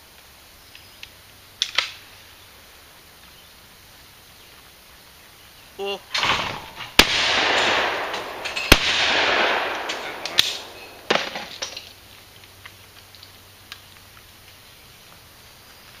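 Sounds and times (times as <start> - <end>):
shotgun shots with echo: 6.1 - 11.6.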